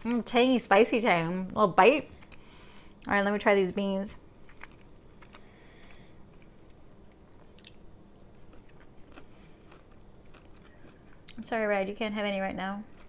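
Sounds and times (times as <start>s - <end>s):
person biting and chewing: 4.5s - 11.4s.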